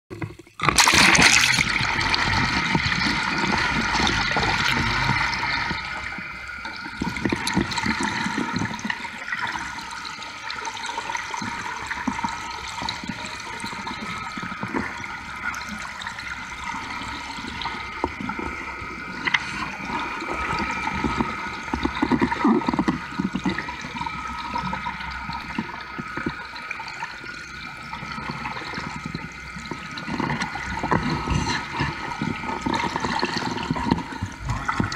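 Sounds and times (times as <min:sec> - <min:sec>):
camera splashing into water: 0:00.6 - 0:01.8
water rushing and churning: 0:00.6 - 0:34.9
boat engine hum: 0:01.7 - 0:08.1.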